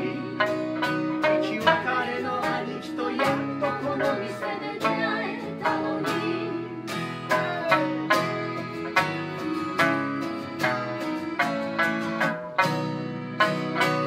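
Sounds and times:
person singing: 0:00.0 - 0:11.2
accordion chords: 0:00.0 - 0:14.0
plucked lute: 0:00.0 - 0:14.0
strummed acoustic guitar: 0:00.0 - 0:14.0.

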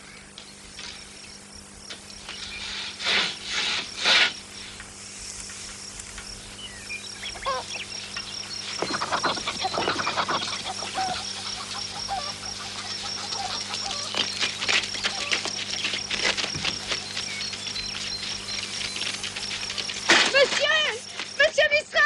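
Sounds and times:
fowl honking and calling: 0:07.2 - 0:21.4.

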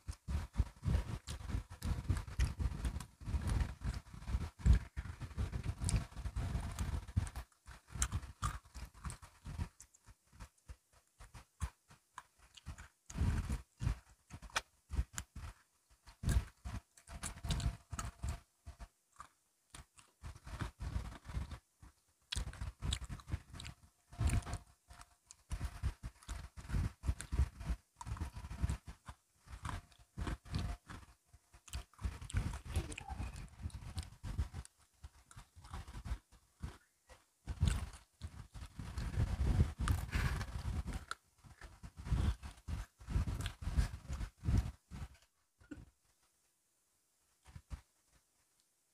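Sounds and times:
crunching and chewing biscuits: 0:00.0 - 0:46.4, 0:47.3 - 0:48.7.

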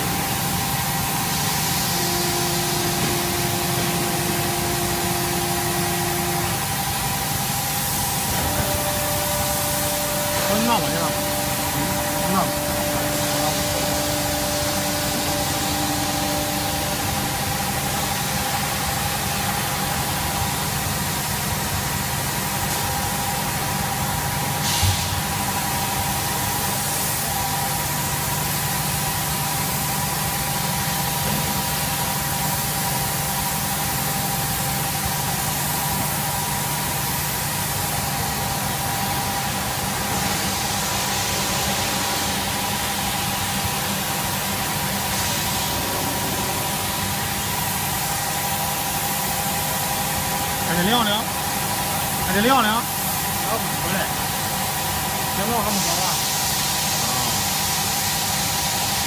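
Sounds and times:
steady whining tones: 0:00.0 - 0:20.4
machinery hiss: 0:00.0 - 0:59.0.

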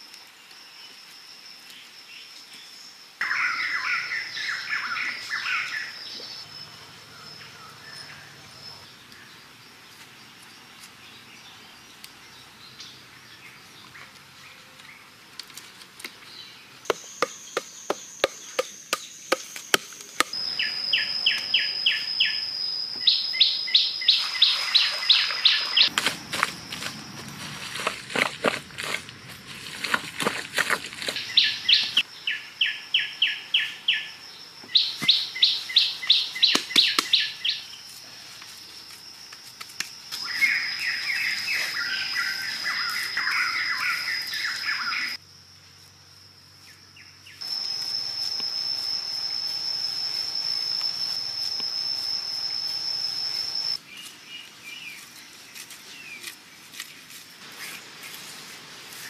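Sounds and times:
high-pitched insect whine: 0:00.0 - 0:13.8, 0:16.8 - 0:59.0
birds chirping: 0:03.2 - 0:15.1, 0:16.1 - 0:37.9, 0:40.2 - 0:45.2.

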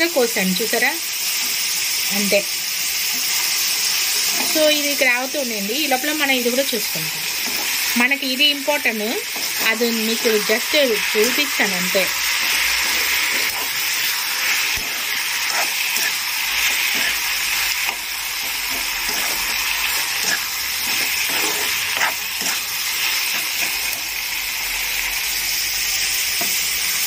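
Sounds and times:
vegetables sizzling in oil: 0:00.0 - 0:27.0
spoon scraping and knocking pan: 0:07.4 - 0:07.9, 0:09.2 - 0:24.2, 0:26.4 - 0:26.7.

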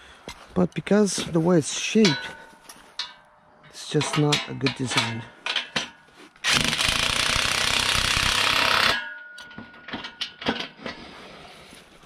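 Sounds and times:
impact driver rattling: 0:05.5 - 0:10.7.

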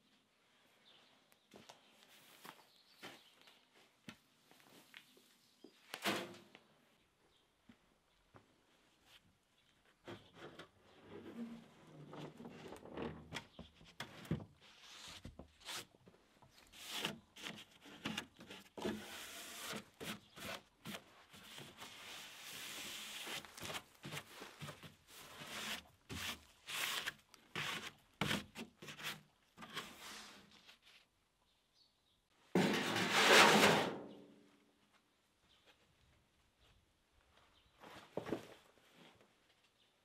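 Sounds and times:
wood and debris scraping: 0:32.6 - 0:34.2.

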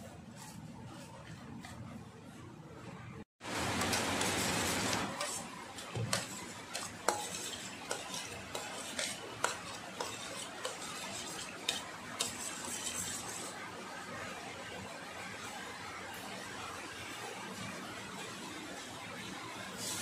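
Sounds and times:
metal spoon scraping a steel bowl: 0:03.8 - 0:13.6.

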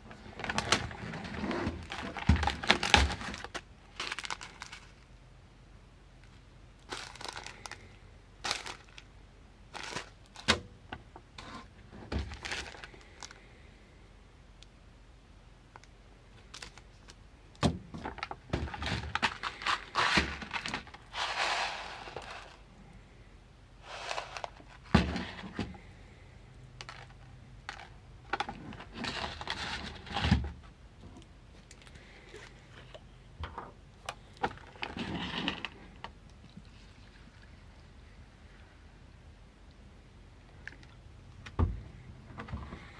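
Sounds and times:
packaging crinkling and rustling: 0:00.1 - 0:05.0, 0:06.8 - 0:09.1, 0:09.7 - 0:10.6, 0:12.1 - 0:13.4, 0:15.8 - 0:17.2, 0:17.9 - 0:22.6, 0:23.8 - 0:25.7, 0:26.8 - 0:30.5, 0:34.4 - 0:36.0.

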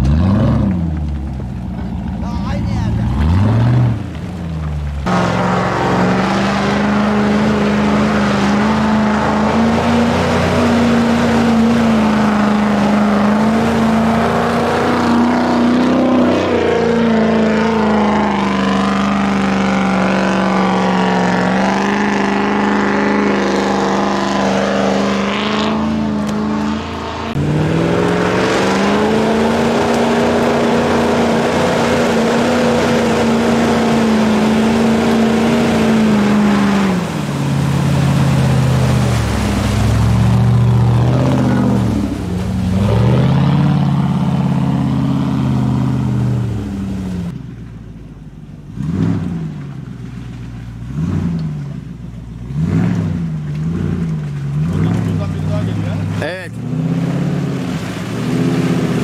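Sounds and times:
truck engine pulling hard: 0:00.0 - 0:59.0.

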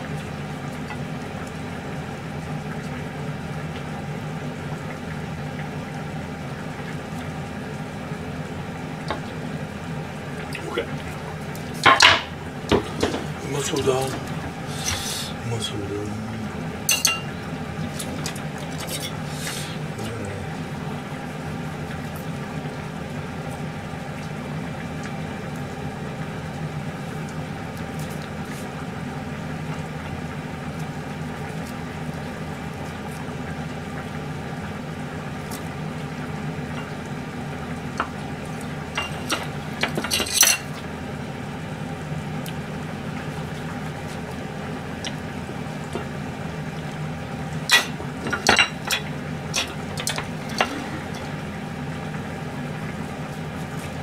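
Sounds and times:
steady low hum: 0:00.0 - 0:54.0
plates clinking: 0:11.8 - 0:13.3, 0:16.9 - 0:17.4, 0:39.0 - 0:40.8, 0:47.7 - 0:51.3.

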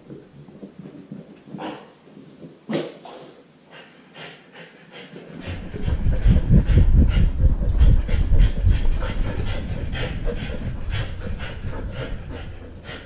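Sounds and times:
camera jostling low rumble: 0:05.4 - 0:13.0.

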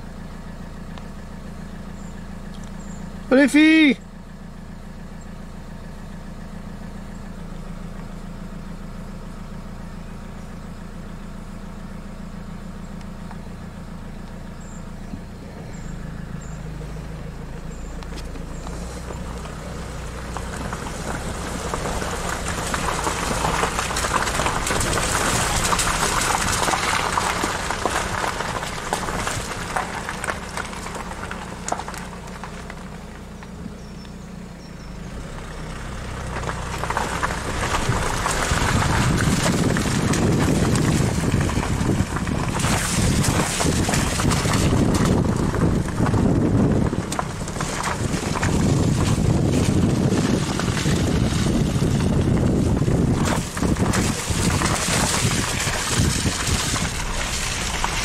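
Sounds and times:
vehicle engine droning: 0:00.0 - 0:58.0
crackling rush of noise: 0:15.4 - 0:33.6, 0:36.0 - 0:58.0.

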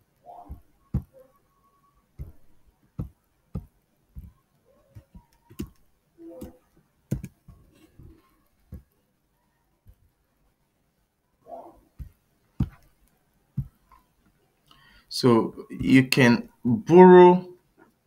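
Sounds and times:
keyboard keystrokes: 0:05.0 - 0:07.4.

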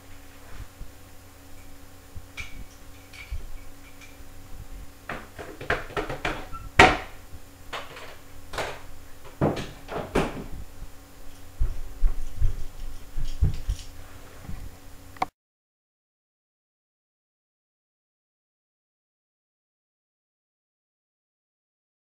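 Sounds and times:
kitchen objects clattering: 0:05.1 - 0:10.5
dull thumps: 0:05.1 - 0:10.7.

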